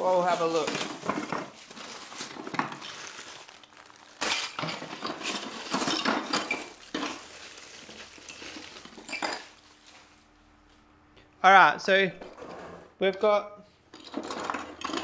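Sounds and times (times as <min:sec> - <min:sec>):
plastic bag crinkling: 0:00.0 - 0:10.4.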